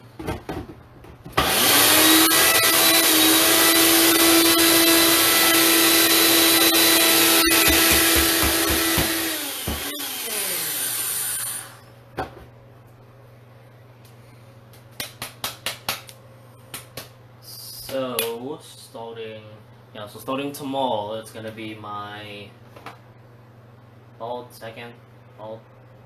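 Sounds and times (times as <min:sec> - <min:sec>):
blender motor running: 0:01.4 - 0:11.9.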